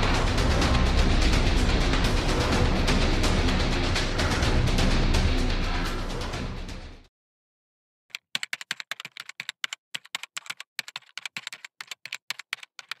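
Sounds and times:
background music: 0:00.0 - 0:07.1
computer keyboard typing: 0:08.1 - 0:13.0.

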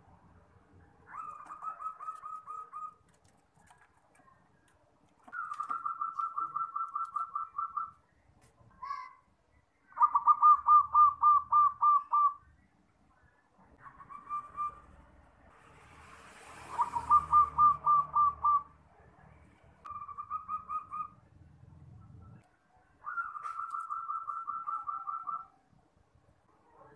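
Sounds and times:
dove cooing: 0:01.1 - 0:03.1, 0:05.3 - 0:08.0, 0:10.0 - 0:12.4, 0:16.7 - 0:18.7, 0:19.9 - 0:21.2, 0:23.0 - 0:25.6
faint rushing noise: 0:14.7 - 0:19.9.

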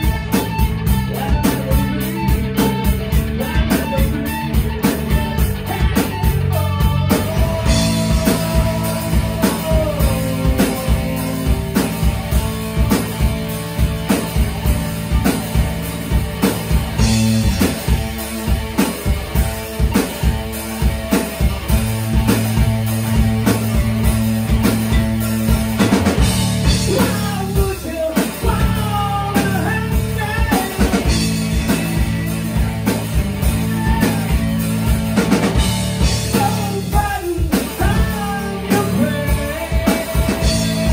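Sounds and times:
drum kit beat: 0:00.0 - 0:40.9
electric guitar and bass: 0:00.0 - 0:40.9
man singing through pa: 0:05.6 - 0:11.4, 0:36.3 - 0:40.9.

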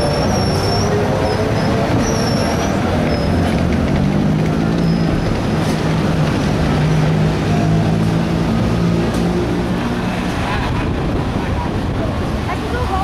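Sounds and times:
high squeals: 0:00.0 - 0:03.4
streetcar rumbling on rails: 0:00.0 - 0:13.0.

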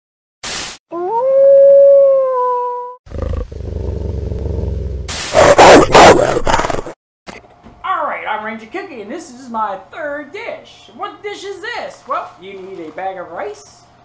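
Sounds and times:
wolf howl: 0:00.9 - 0:03.0, 0:05.4 - 0:06.6
wolf snarl: 0:03.1 - 0:07.0.

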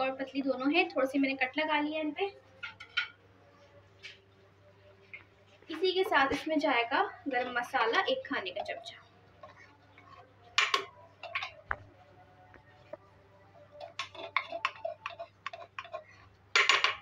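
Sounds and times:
faint low hum: 0:00.0 - 0:17.0
spoon tapping cooking pot: 0:09.4 - 0:11.8, 0:13.8 - 0:17.0.

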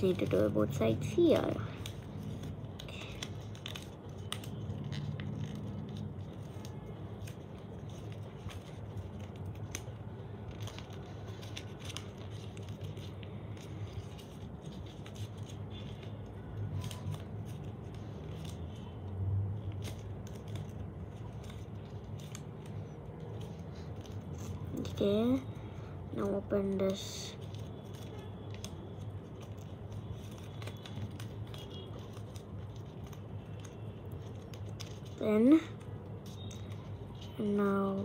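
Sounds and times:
paper rustling and crinkling: 0:00.0 - 0:38.0.

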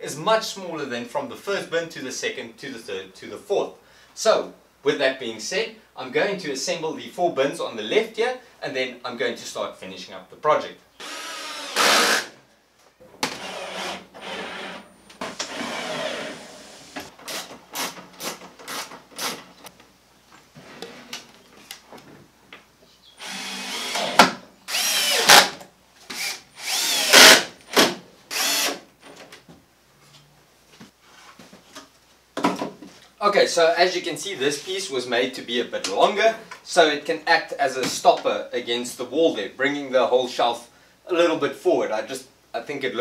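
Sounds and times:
cordless drill driving screws: 0:11.0 - 0:12.4, 0:13.2 - 0:19.4, 0:23.2 - 0:28.8.

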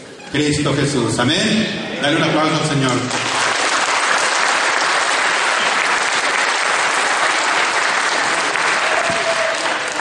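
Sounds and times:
congregation applauding: 0:02.8 - 0:10.0.

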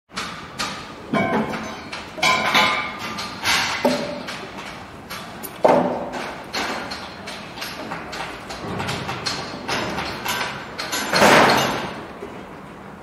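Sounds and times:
construction knocks and clanks: 0:00.1 - 0:12.8.

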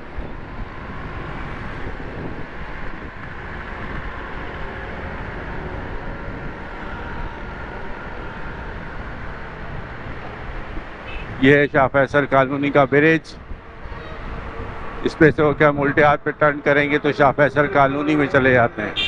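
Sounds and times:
wind on microphone: 0:00.0 - 0:11.4, 0:13.4 - 0:16.5
motorcycle engine rumble: 0:00.0 - 0:19.0
traffic rumble: 0:00.0 - 0:19.0.

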